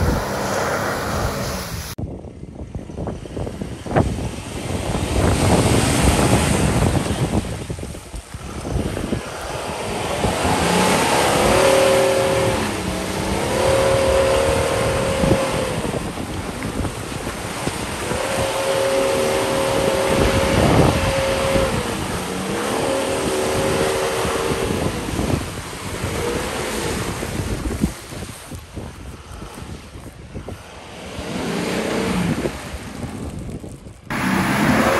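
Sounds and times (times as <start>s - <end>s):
diesel engine revving: 0.0s - 2.0s, 8.3s - 27.2s, 30.8s - 33.0s, 34.1s - 34.9s
wind rushing: 0.0s - 34.9s.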